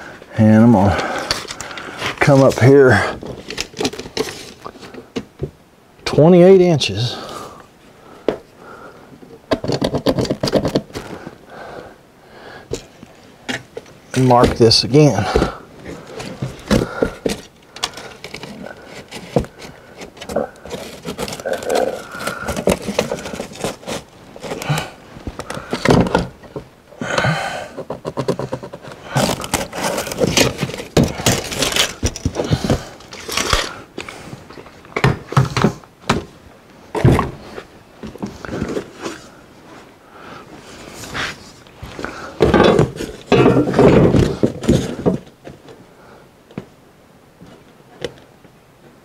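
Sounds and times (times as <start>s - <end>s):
hands knocking and scraping on plywood: 9.5s - 11.1s, 27.8s - 33.0s.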